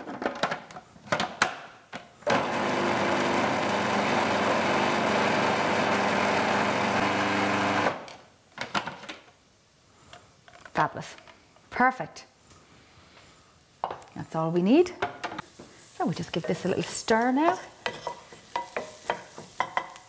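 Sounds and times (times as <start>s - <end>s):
food processor motor whirring: 2.3s - 8.0s.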